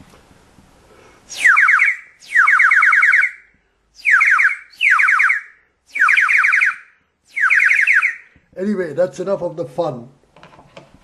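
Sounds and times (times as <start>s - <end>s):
whistle trilling blasts: 1.3s - 8.5s.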